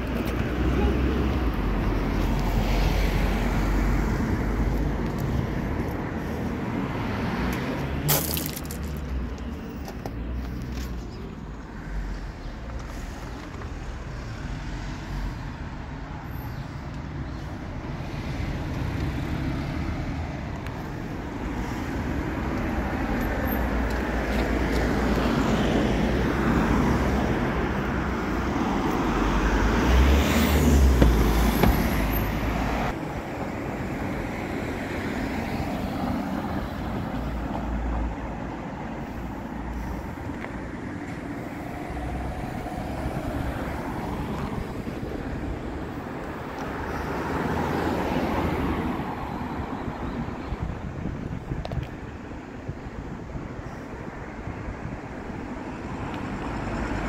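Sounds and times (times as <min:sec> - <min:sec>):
steady low traffic rumble: 0:00.0 - 0:57.0.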